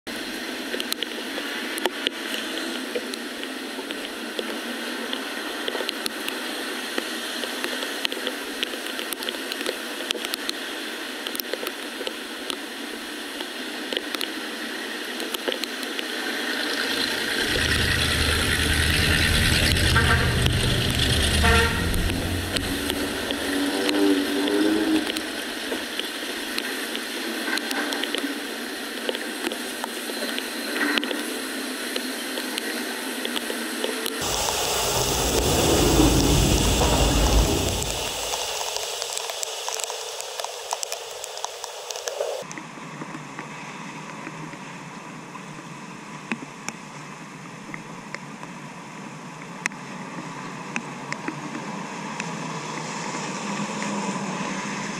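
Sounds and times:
deep rushing water: 0:03.2 - 0:29.8, 0:32.8 - 0:42.5
rain hissing: 0:15.9 - 0:27.4, 0:28.3 - 0:42.4
water gurgling: 0:16.4 - 0:26.1, 0:34.2 - 0:42.1.

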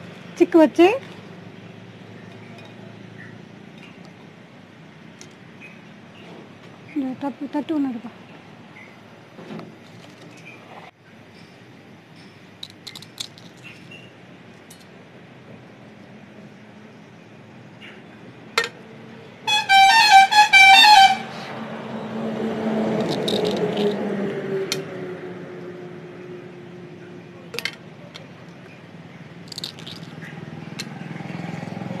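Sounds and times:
vehicle engine passing: 0:18.8 - 0:32.0
vehicle horn honking short toots: 0:19.5 - 0:21.5.

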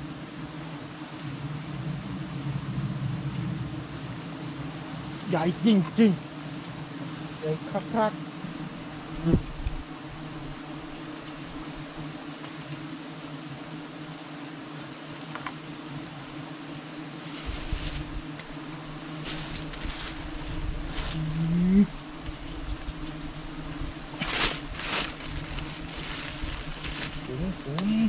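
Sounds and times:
bees buzzing: 0:00.0 - 0:28.0
rustling crackling noises: 0:17.2 - 0:28.0.

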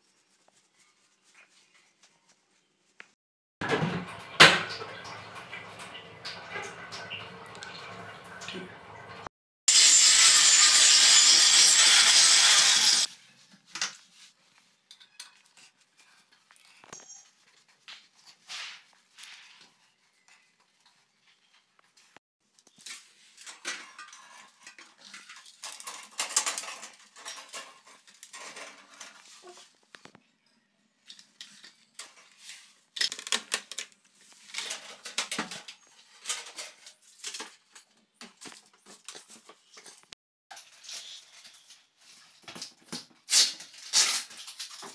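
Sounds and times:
electric drill into tile: 0:09.7 - 0:13.1
plastic tubing clicks and rattles: 0:33.0 - 0:37.6.

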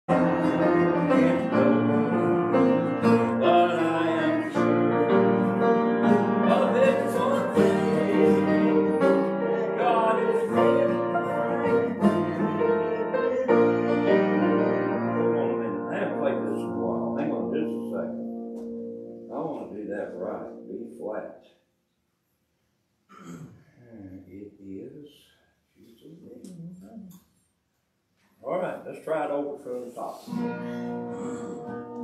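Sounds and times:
sustained keyboard chords: 0:00.1 - 0:21.3.

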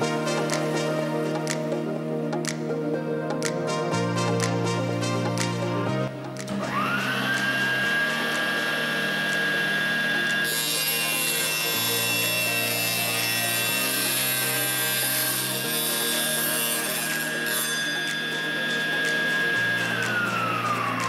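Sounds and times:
saw blade cutting wood: 0:06.4 - 0:21.0
table saw motor whine: 0:06.4 - 0:21.0.

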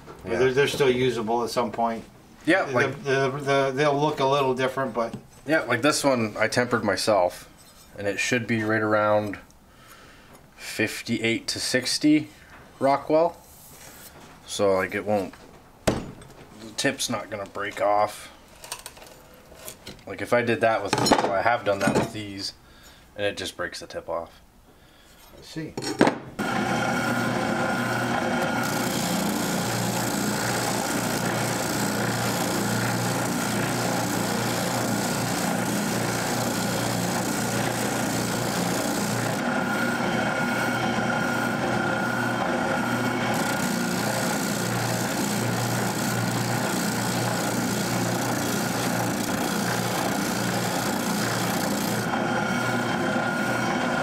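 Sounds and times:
spindle sander motor humming: 0:26.4 - 0:54.0
wood rasping on sanding drum: 0:28.6 - 0:39.5, 0:42.9 - 0:52.1.

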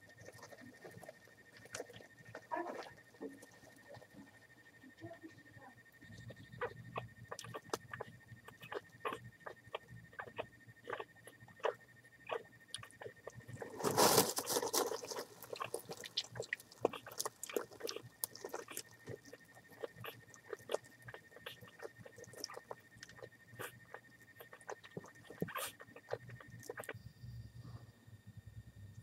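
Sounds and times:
straw bedding crackling and rustling: 0:13.6 - 0:16.5.

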